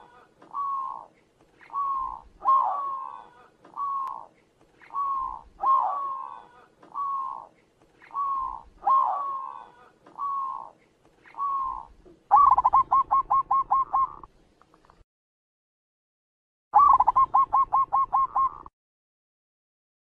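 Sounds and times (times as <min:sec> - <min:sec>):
dove cooing: 0:00.0 - 0:14.3, 0:16.8 - 0:18.7.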